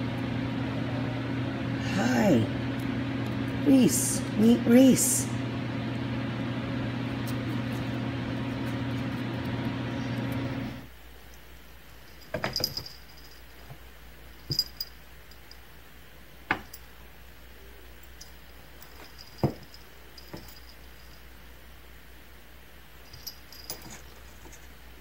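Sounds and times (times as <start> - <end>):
low electrical hum: 0.0 - 25.0.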